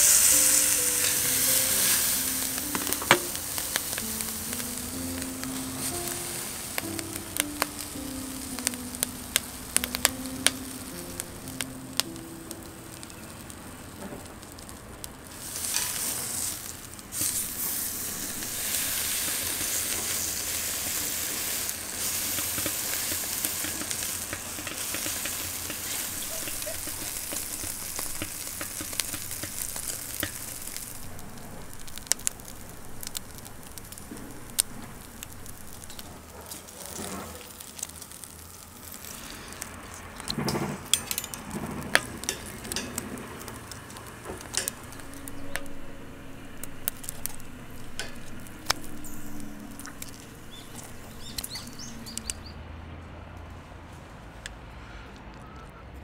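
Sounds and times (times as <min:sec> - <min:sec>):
pork rind sizzling on a grill: 0:00.0 - 0:52.5
metal tongs and scissors clicking: 0:40.2 - 0:43.1.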